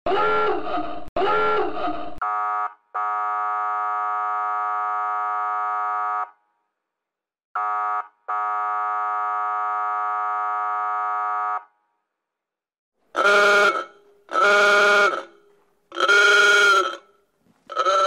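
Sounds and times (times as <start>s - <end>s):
buzzy police vehicle horn: 1.2s - 6.4s, 7.6s - 11.7s, 13.2s - 18.0s.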